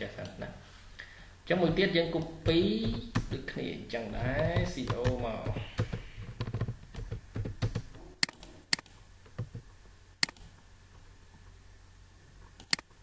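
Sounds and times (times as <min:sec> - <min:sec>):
computer mouse clicking: 0:04.4 - 0:09.6, 0:10.2 - 0:10.6, 0:12.6 - 0:12.9.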